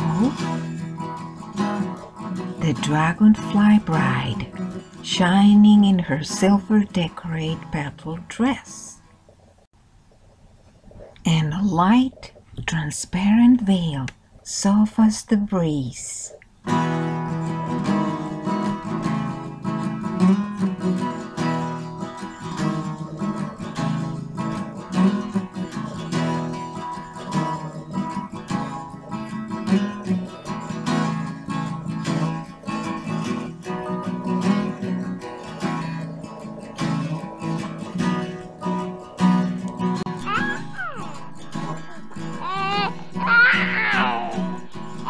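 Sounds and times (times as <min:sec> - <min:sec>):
acoustic guitar music: 0:00.0 - 0:45.0.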